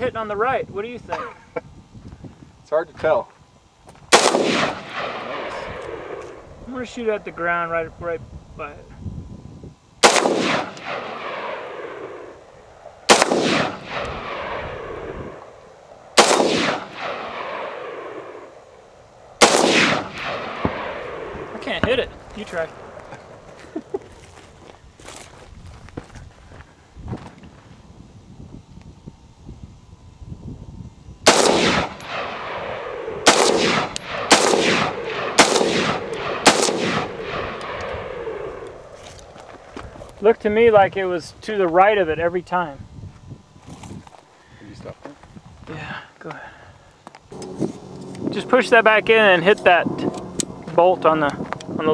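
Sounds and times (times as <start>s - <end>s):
rifle shots with echo: 4.1s - 6.5s, 10.0s - 15.5s, 16.2s - 18.6s, 19.4s - 21.8s, 31.2s - 39.0s.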